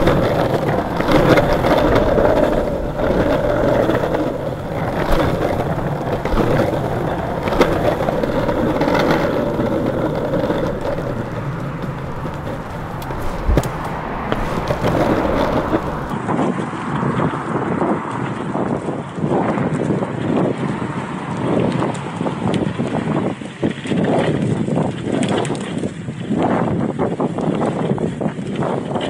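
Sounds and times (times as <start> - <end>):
wheels knocking over cracks: 0.0 - 16.2
longboard wheels rolling on asphalt: 0.0 - 29.0.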